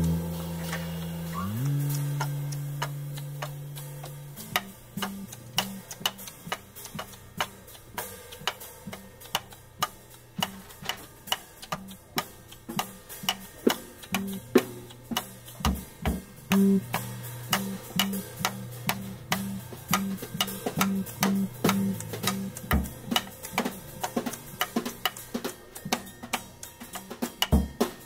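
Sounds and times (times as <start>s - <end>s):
low plucked guitar: 0.0s - 6.2s, 13.7s - 24.8s
drum kit ticking: 0.0s - 28.0s
louder drum strikes: 14.2s - 23.8s.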